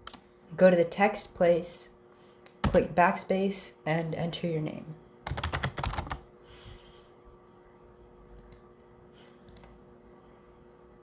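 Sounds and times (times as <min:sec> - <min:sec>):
typing on a computer keyboard: 0:05.2 - 0:06.2.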